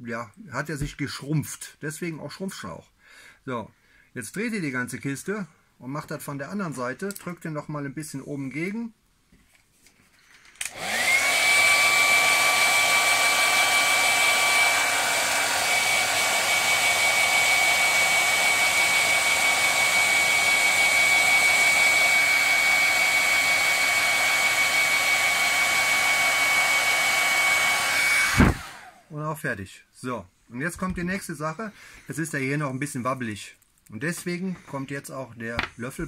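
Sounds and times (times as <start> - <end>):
hair dryer running: 10.6 - 29.1.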